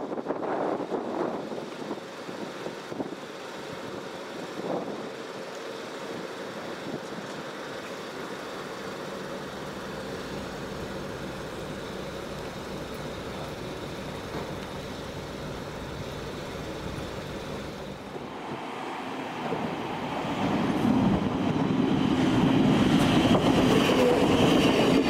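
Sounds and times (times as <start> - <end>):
road traffic noise: 0.0 - 25.0
wind buffeting microphone: 19.4 - 25.0.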